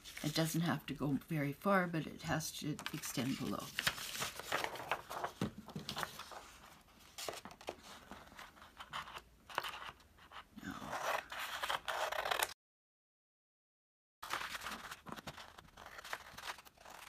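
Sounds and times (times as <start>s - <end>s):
paper rustling: 2.8s - 10.4s, 14.2s - 17.0s.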